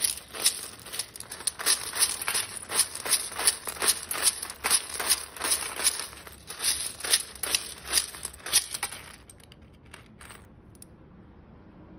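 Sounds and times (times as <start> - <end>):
parrot rustling through metal tin: 0.0 - 10.4.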